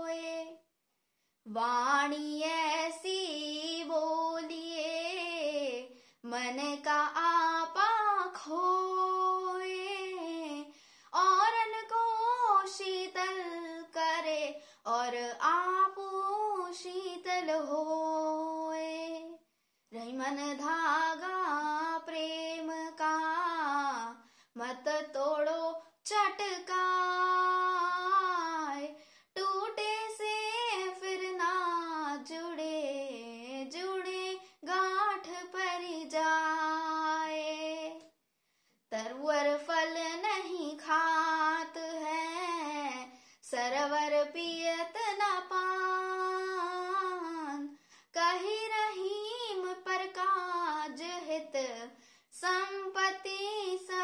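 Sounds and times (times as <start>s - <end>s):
boy singing unaccompanied: 1.5s - 19.4s, 20.0s - 38.0s, 38.9s - 54.0s.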